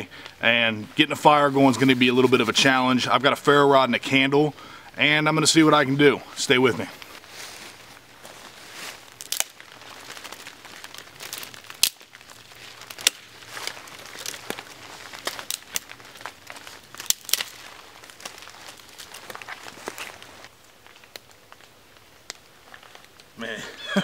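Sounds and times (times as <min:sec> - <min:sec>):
branches rustling: 0:00.0 - 0:24.0
twigs snapping: 0:06.9 - 0:23.4.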